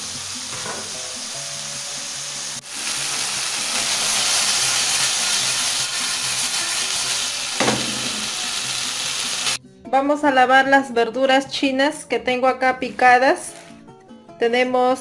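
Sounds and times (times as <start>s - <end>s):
chicken sizzling in oil: 0.0s - 9.6s.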